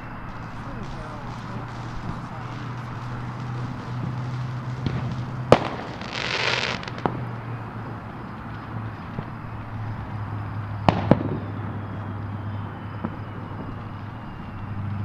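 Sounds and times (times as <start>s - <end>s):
firework crackling hiss: 0.0s - 14.3s
firework bang: 0.3s - 7.4s, 10.8s - 11.5s
small firework pops: 0.3s - 7.5s, 10.8s - 11.6s.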